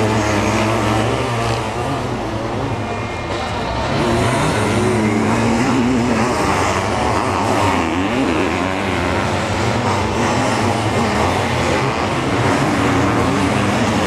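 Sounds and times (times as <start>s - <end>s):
motocross engines racing: 0.0s - 14.0s.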